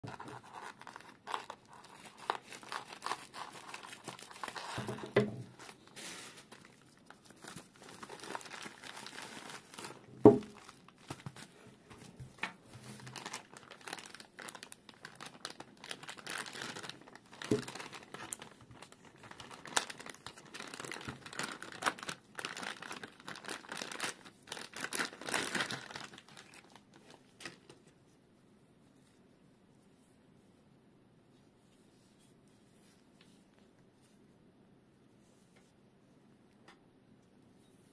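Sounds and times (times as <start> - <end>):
plastic packaging crinkling: 0.0 - 27.9.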